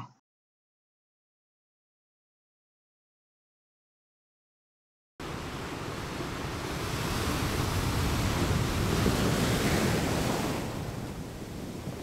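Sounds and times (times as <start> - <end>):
ocean surf rushing: 5.2 - 12.0.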